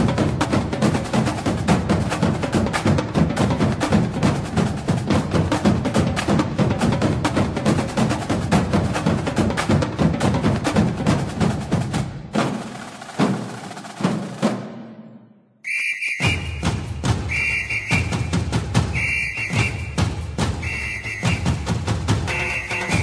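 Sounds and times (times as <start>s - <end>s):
fast drum and percussion music: 0.0s - 14.9s, 16.2s - 23.0s
shrill whistle blast: 15.6s - 21.7s, 22.3s - 23.0s.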